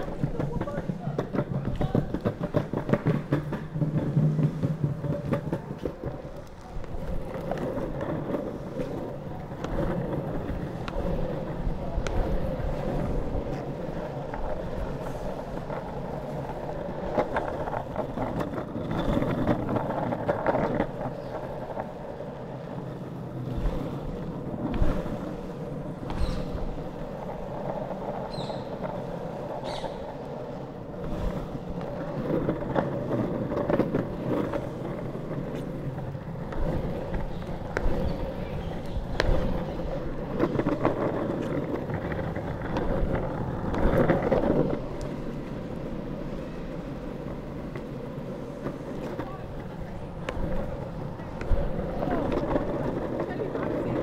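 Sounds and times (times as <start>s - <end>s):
longboard knocking over bumps: 0.0s - 6.4s
longboard wheels rumbling on asphalt: 0.0s - 54.0s.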